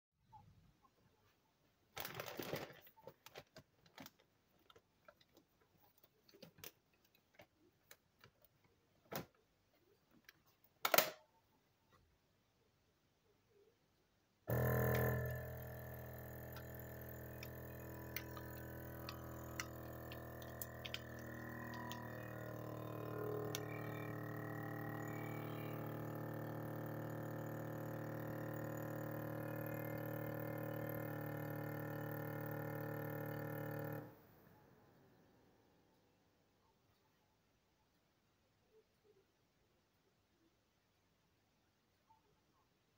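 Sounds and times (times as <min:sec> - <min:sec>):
plastic bag crackling: 0:02.0 - 0:04.2
vacuum sealer pump running: 0:14.5 - 0:34.2.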